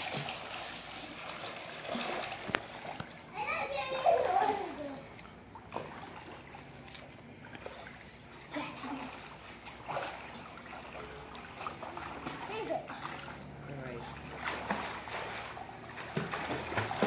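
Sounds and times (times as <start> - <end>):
pool water lapping and splashing: 0.0 - 17.0
short splashes: 0.0 - 17.0.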